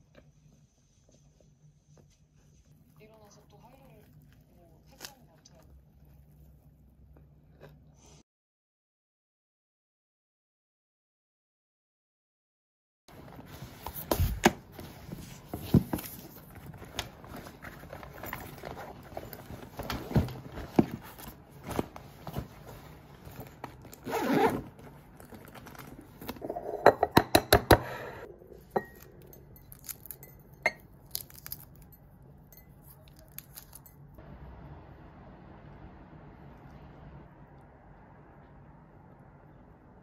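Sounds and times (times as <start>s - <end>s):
eggshell cracking: 29.0s - 31.9s.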